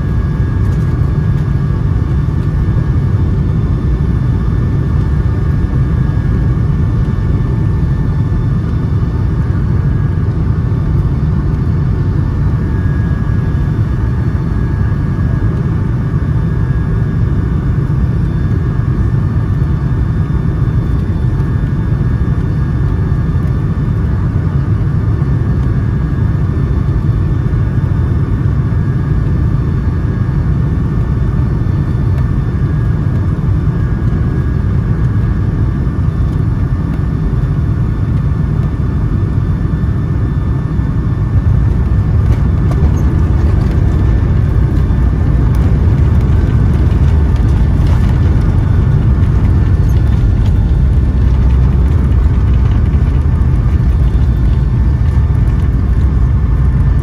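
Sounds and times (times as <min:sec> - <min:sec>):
airplane engines and airflow rumble: 0:00.0 - 0:57.0
faint whining tones: 0:31.2 - 0:57.0.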